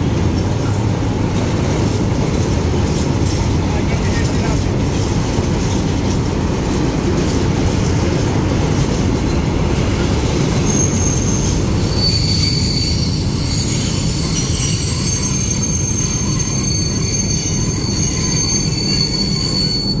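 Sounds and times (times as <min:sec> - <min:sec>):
train wheels rumbling on rails: 0:00.0 - 0:20.0
high wheel squeal: 0:09.3 - 0:20.0.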